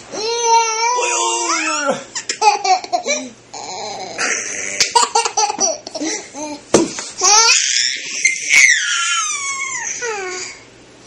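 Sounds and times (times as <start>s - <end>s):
baby laughing in squeals: 7.2s - 10.6s.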